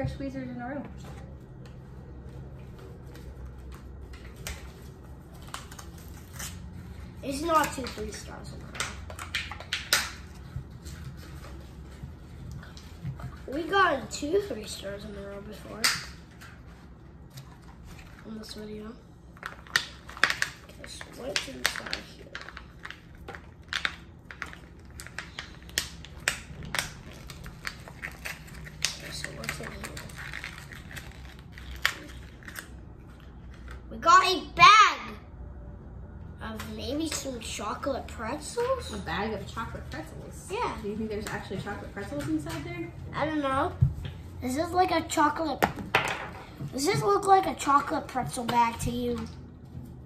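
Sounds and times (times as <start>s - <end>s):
packaging crackling: 19.4s - 32.7s.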